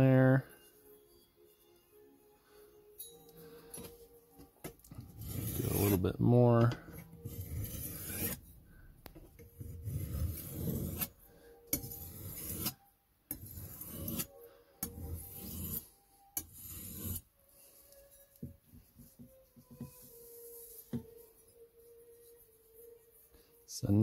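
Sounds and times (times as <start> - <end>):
knife grinding on sharpening stone: 5.0 - 6.0, 6.9 - 8.5, 9.4 - 17.3.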